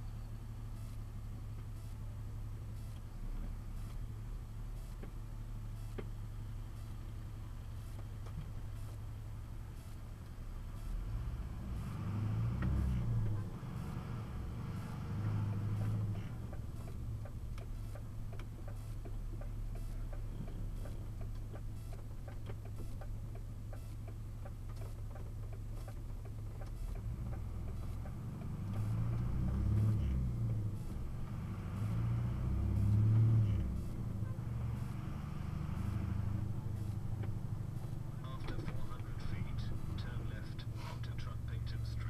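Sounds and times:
truck engine running: 0.0 - 42.0
faint regular ticking: 15.8 - 29.3.

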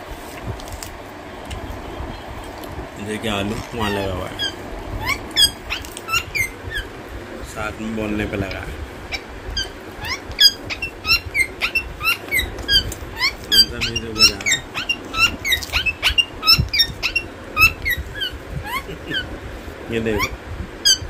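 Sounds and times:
parrot chattering: 3.1 - 7.0, 8.1 - 19.4, 20.0 - 21.0.

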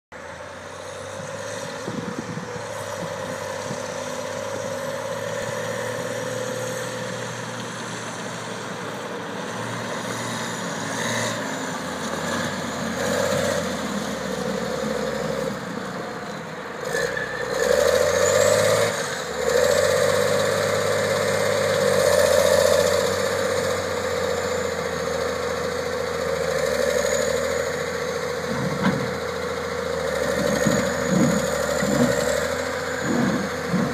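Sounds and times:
diesel engine running: 0.1 - 33.9.

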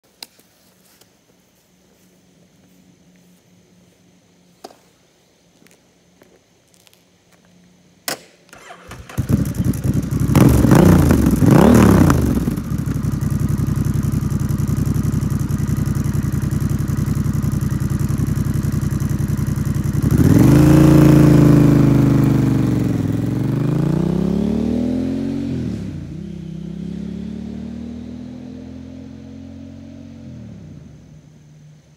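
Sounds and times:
motorcycle engine revving and idling: 8.6 - 31.9.

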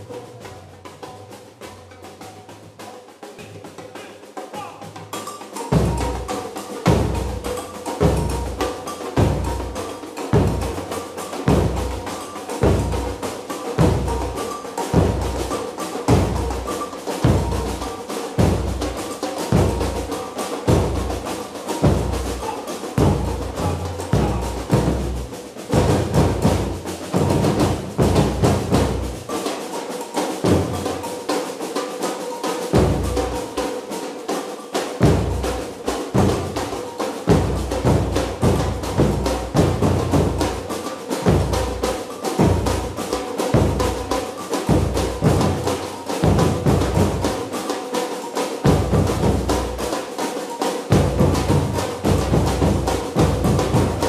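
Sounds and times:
heavy bass drum beat: 5.7 - 29.3, 35.0 - 47.5, 51.0 - 54.0.

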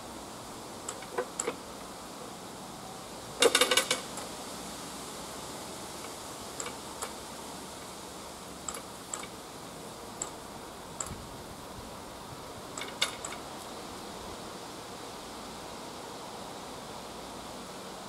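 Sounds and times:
outdoor background hiss: 0.0 - 18.0.

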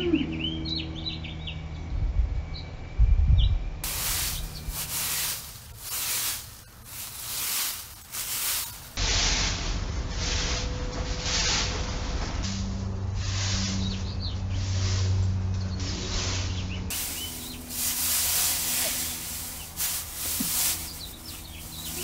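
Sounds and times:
broom sweeping grass: 3.8 - 12.0, 13.2 - 22.0.

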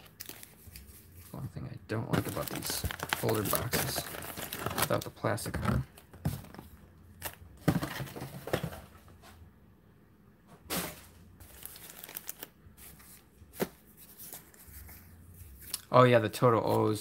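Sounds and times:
card packs crinkling and ripping: 0.0 - 1.4, 2.0 - 8.8, 11.4 - 15.0.

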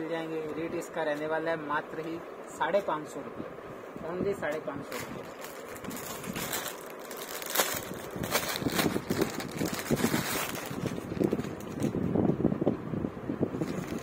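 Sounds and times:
fabric rustling: 4.8 - 12.0.

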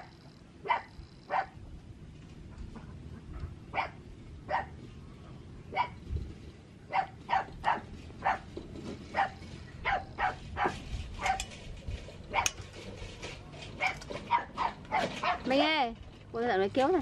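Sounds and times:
dog yelping: 0.0 - 1.6, 3.4 - 4.8, 5.7 - 6.0, 6.9 - 8.5, 9.1 - 11.5, 12.3 - 12.6, 13.8 - 15.5.

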